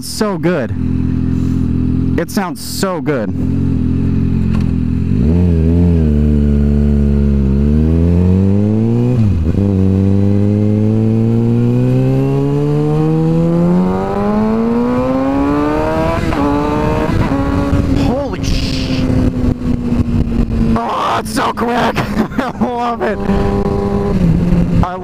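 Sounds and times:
motorcycle engine revving hard: 3.3s - 25.0s.

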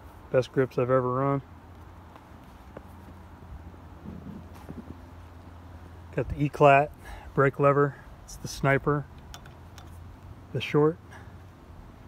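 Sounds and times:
footsteps on dirt trail: 1.6s - 5.6s.

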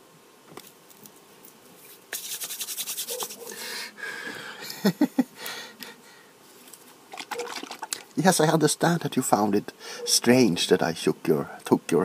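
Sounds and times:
scratching on the microphone: 1.8s - 3.5s.

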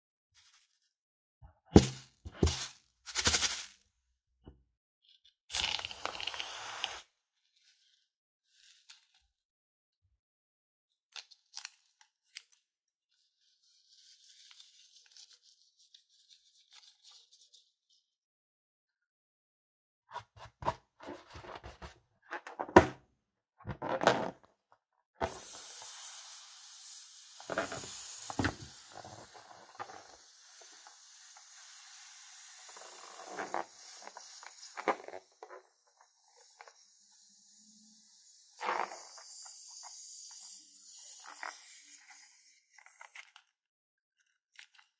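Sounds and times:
faint hiss: 25.3s - 35.4s.

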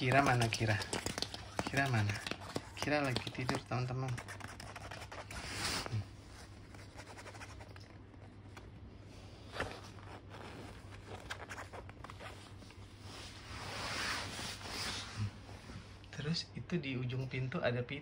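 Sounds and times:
bedsheet rustling: 9.2s - 16.0s
cable tie scraping over fabric: 9.5s - 15.3s.

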